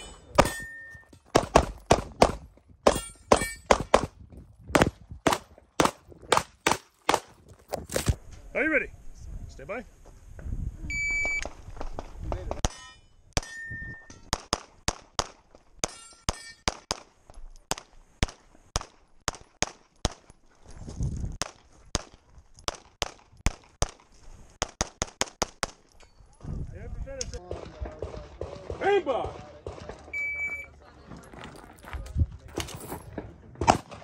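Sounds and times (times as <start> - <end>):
rapid pistol fire: 4.8 - 7.3.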